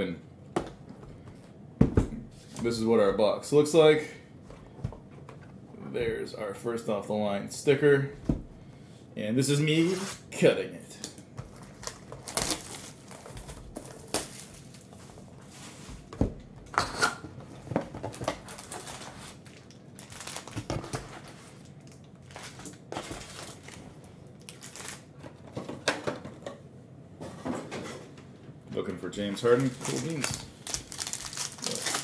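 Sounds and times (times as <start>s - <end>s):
foil packs crinkling: 11.4s - 15.0s, 18.0s - 25.2s, 29.2s - 32.0s
plastic wrap tearing: 11.5s - 15.0s, 18.2s - 23.8s, 24.4s - 25.2s, 29.4s - 32.0s.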